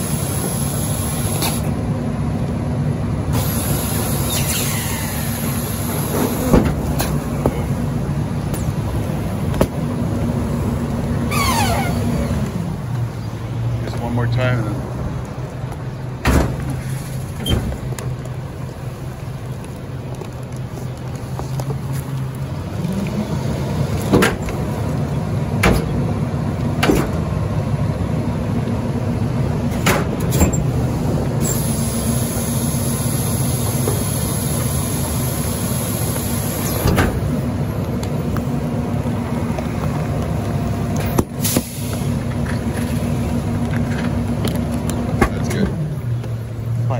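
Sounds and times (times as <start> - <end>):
garbage truck diesel engine: 0.0 - 46.9
hydraulic hissing: 3.3 - 6.6, 31.4 - 37.0.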